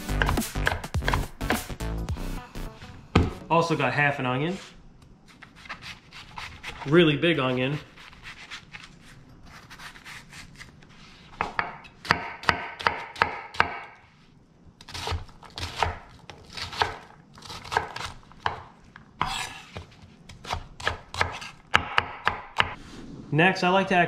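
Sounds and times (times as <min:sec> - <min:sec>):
knife chopping on cutting board: 0:00.0 - 0:01.7, 0:11.4 - 0:14.0, 0:14.8 - 0:22.8
knife slicing onion: 0:00.0 - 0:01.7, 0:05.3 - 0:14.2, 0:14.8 - 0:22.8.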